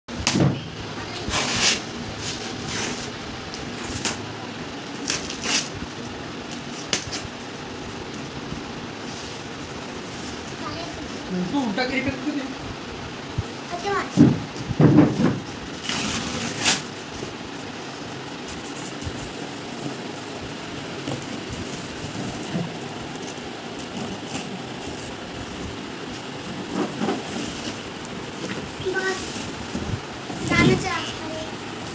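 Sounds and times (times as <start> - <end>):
steady hiss: 0.2 - 31.9
cardboard boxes scraping: 1.1 - 3.2, 15.1 - 17.1, 20.9 - 31.0
packing tape ripping off cardboard: 1.3 - 3.1, 4.8 - 5.9, 6.5 - 7.4, 15.3 - 17.1
boxes bumping: 14.1 - 16.8.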